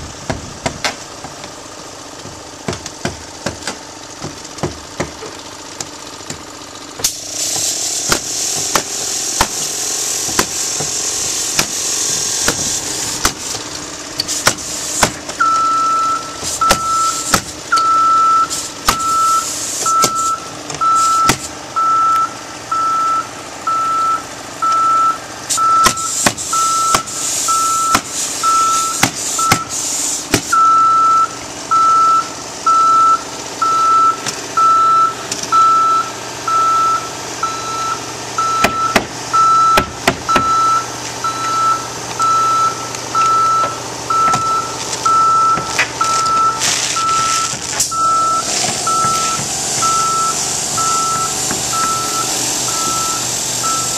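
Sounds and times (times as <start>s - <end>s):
pneumatic nailer snaps: 7.0s - 15.4s, 25.5s - 30.6s
reversing alarm beeping: 15.4s - 29.9s, 30.5s - 53.9s.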